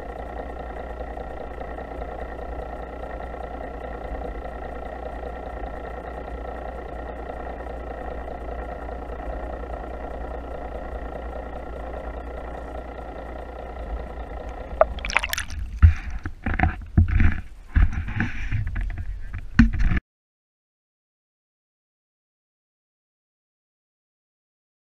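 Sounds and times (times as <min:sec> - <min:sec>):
muffled boat engine underwater: 0:06.3 - 0:20.0
water splashing and gurgling: 0:14.7 - 0:16.3.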